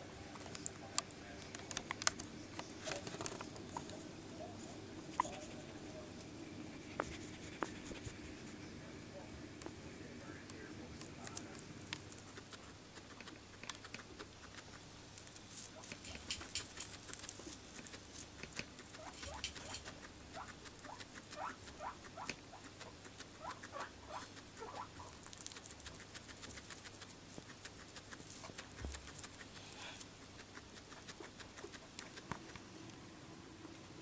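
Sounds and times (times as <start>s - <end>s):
guinea pig chewing hay: 0.0s - 34.0s
guinea pig squeaking: 5.0s - 5.7s, 11.2s - 14.8s, 15.5s - 32.6s.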